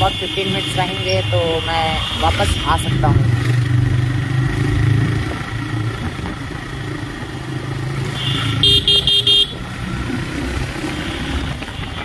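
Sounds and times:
wind and road noise: 0.0s - 12.0s
vehicle horn toots: 8.2s - 9.6s.

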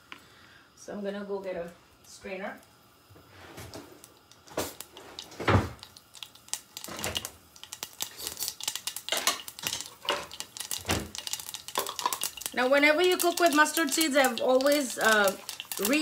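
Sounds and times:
seeds popping in hot oil: 3.7s - 16.0s.

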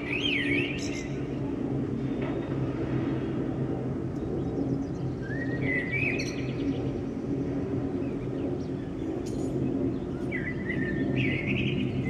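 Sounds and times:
jet airliner rumbling overhead: 0.0s - 12.0s.

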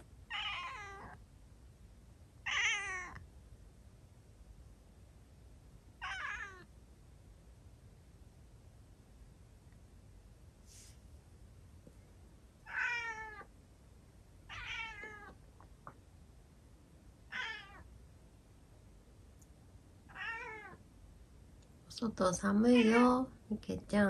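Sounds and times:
cat meowing hoarsely: 0.3s - 1.2s, 2.4s - 3.2s, 6.0s - 6.7s, 12.6s - 13.5s, 14.5s - 15.4s, 17.3s - 17.8s, 20.1s - 20.8s.

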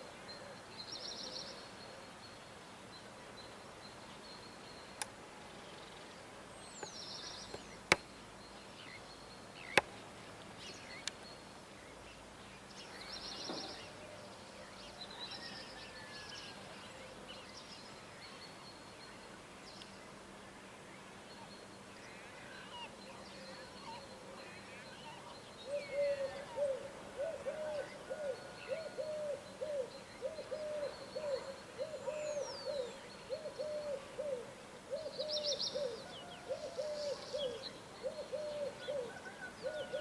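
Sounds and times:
faint steady hiss: 0.0s - 40.0s.

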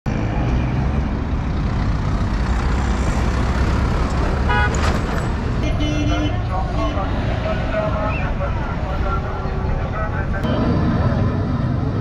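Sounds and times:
road traffic rumbling: 0.1s - 12.0s
vehicle horn toot: 4.5s - 4.8s, 5.6s - 7.0s.

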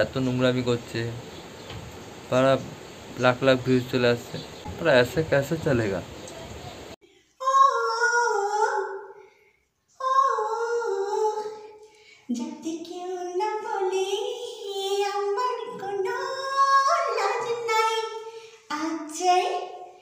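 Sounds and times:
woman singing unaccompanied: 7.4s - 9.2s, 9.9s - 20.0s.

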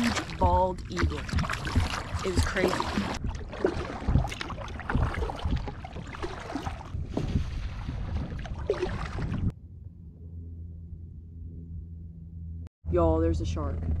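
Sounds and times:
water splashing around kayak: 0.0s - 9.5s
wind buffeting microphone: 0.4s - 9.5s
low steady hum: 8.6s - 14.0s.

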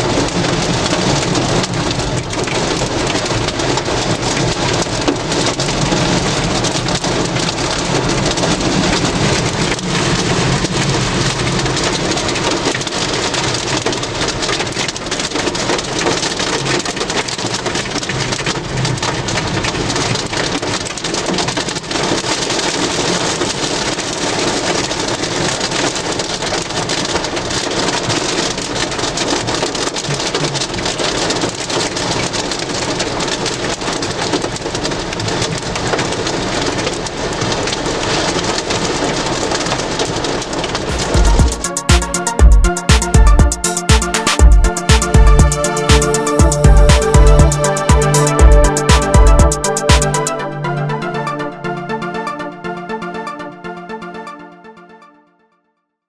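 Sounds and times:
heavy rain on vehicle: 0.0s - 43.3s.

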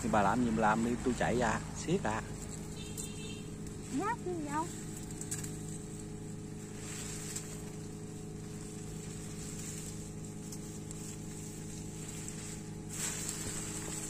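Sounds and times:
faint high whine: 0.0s - 14.0s
low hum of held tones: 0.0s - 14.0s.

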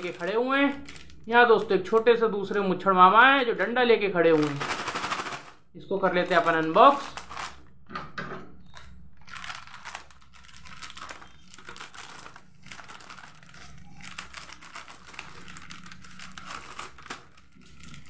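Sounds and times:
scissors cutting plastic packet: 0.0s - 2.1s, 4.3s - 5.5s, 6.2s - 7.6s, 8.7s - 18.0s
plastic wrapper crinkling: 0.0s - 2.6s, 4.3s - 5.6s, 6.2s - 7.7s, 8.7s - 18.0s.

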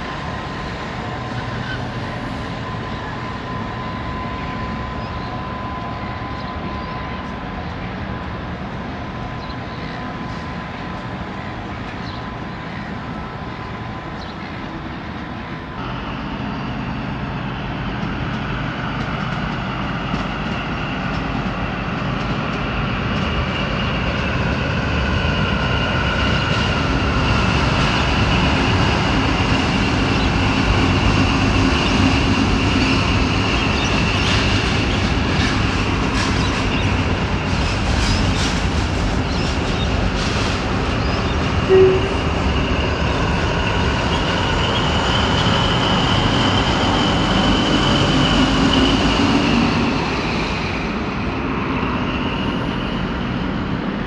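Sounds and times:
train rumbling across bridge: 0.0s - 54.0s
train wheels clicking: 26.2s - 52.0s
high-pitched whining tones: 39.6s - 50.9s.

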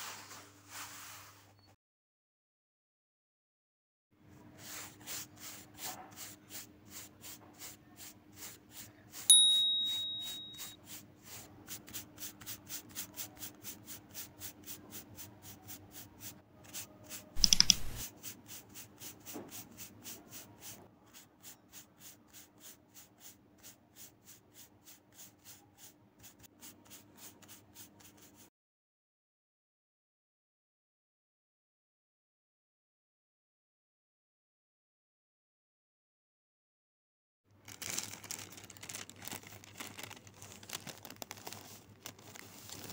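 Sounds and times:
paintbrush scrubbing on canvas: 4.4s - 9.3s, 10.8s - 28.5s
bright ding: 9.3s - 10.8s.

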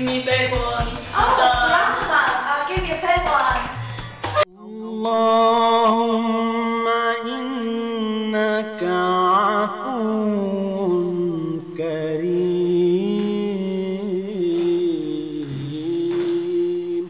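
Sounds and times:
person chanting slow melody: 4.5s - 17.0s.

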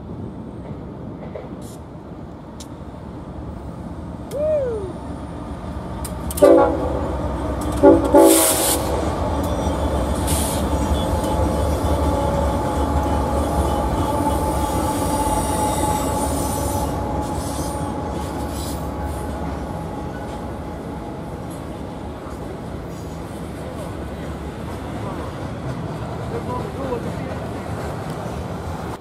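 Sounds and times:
freight cars rolling on rails: 0.0s - 29.0s
locomotive engines rumbling: 0.0s - 29.0s
locomotive horn blasts: 6.3s - 9.7s, 10.8s - 17.6s.

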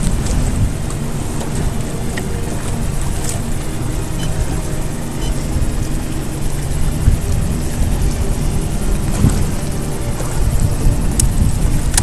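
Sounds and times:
boat motor rumbling: 0.0s - 12.0s
wind buffeting microphone: 0.0s - 12.0s.

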